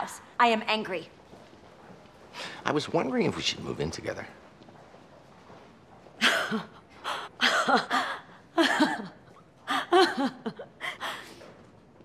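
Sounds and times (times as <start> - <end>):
woman gasping breaths: 6.2 - 8.4, 10.8 - 11.6
woman laughing tearfully: 6.2 - 11.2.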